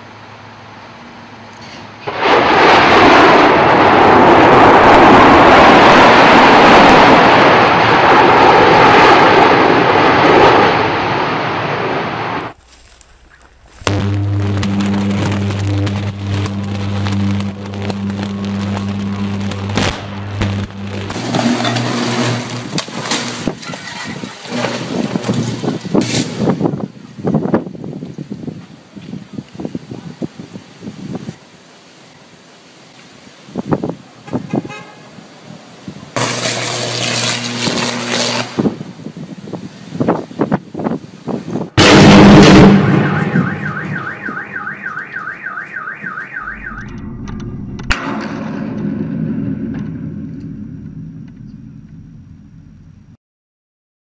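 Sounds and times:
electric crackling: 2.1s - 26.6s, 36.2s - 38.8s, 41.8s - 44.2s
sharp electric cracks: 12.4s - 26.7s, 36.2s - 38.8s, 41.8s - 44.2s, 46.5s - 52.6s
electric arcing buzz: 12.5s - 26.6s, 36.2s - 38.9s
very loud blast: 13.7s - 23.6s, 41.8s - 45.0s, 46.0s - 52.8s
alarm warbling: 13.9s - 22.8s, 41.8s - 48.0s.

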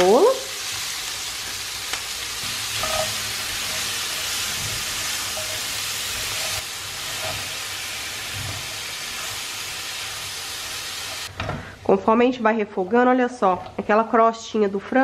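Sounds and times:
vegetables sizzling in frying pan: 0.0s - 11.4s.

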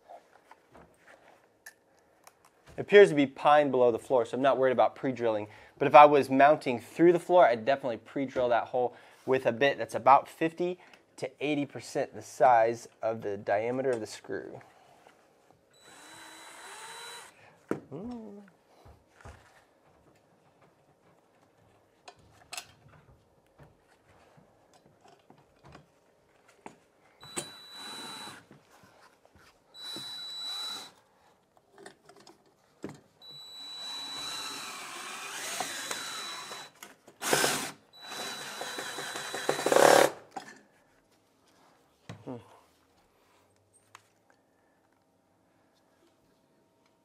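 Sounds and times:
cordless drill driving screws: 15.8s - 17.3s, 27.2s - 28.5s, 29.8s - 31.0s, 33.2s - 40.2s.

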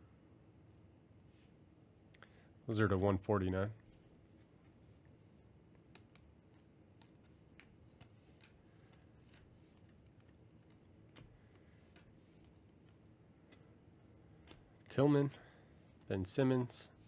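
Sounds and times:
trading cards flipping clicks: 5.7s - 13.7s.

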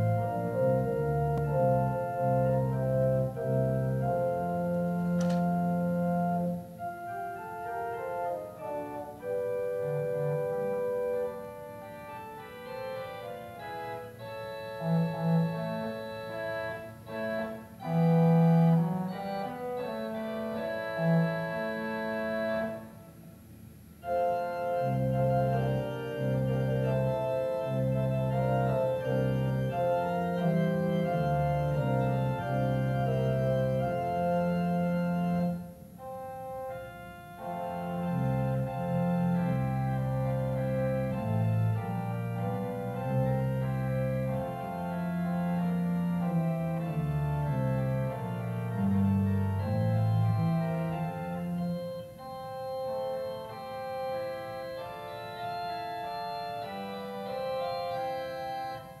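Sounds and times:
church organ fanfare: 0.0s - 22.9s, 24.0s - 59.0s.

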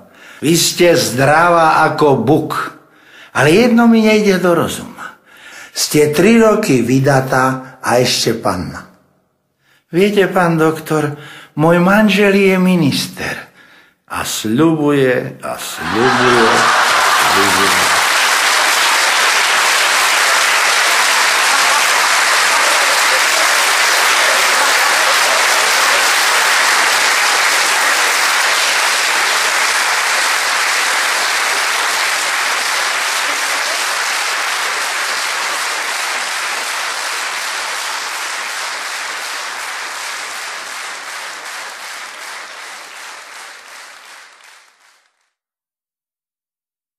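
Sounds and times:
audience applauding: 15.8s - 45.4s.

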